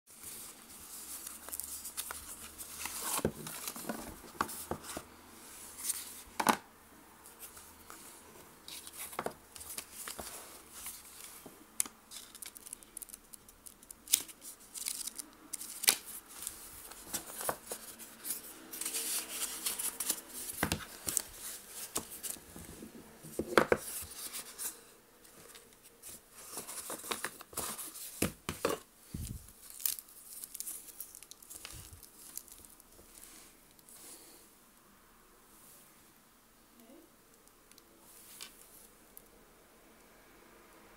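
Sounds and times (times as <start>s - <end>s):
packaging rustling: 0.2s - 5.0s, 8.7s - 33.2s.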